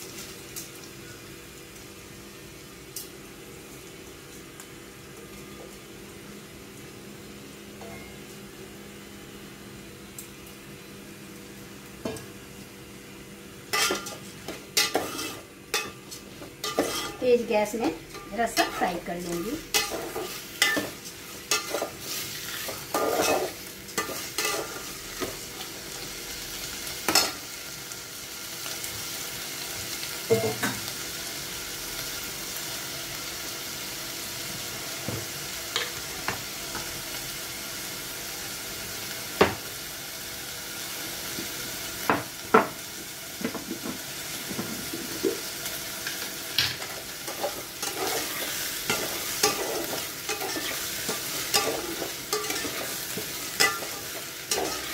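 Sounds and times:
rice sizzling in a pot: 0.0s - 54.9s
metal spatula scraping a pot: 14.8s - 16.0s, 16.6s - 17.2s.

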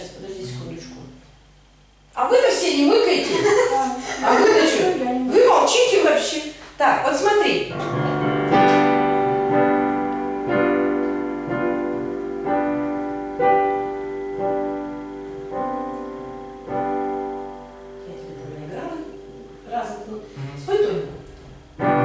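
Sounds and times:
piano chords ringing: 7.7s - 22.0s.

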